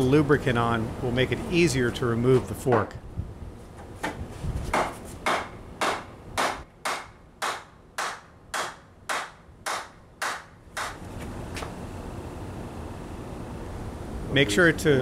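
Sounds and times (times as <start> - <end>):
sharp knocks on wood block: 4.0 - 11.0.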